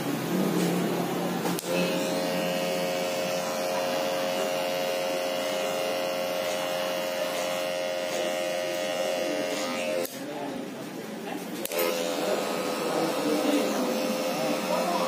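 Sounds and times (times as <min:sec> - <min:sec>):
electric hair clipper buzzing: 0:01.6 - 0:10.1, 0:11.6 - 0:15.0.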